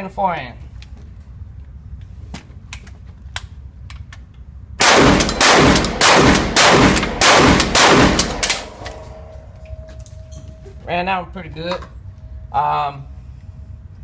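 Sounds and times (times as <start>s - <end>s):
shotgun blasts echoing indoors: 4.8s - 10.3s.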